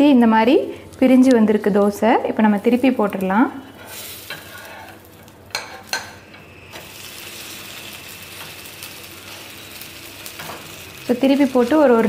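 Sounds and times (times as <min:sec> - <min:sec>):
dosa sizzling on hot pan: 0:00.9 - 0:12.0
steel spatula scraping pan: 0:03.5 - 0:06.2.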